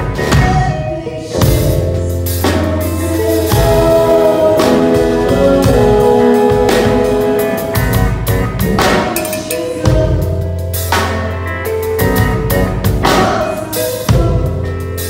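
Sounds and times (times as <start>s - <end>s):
drum kit with cymbal hits: 0.0s - 15.0s
guitars holding notes: 0.0s - 15.0s.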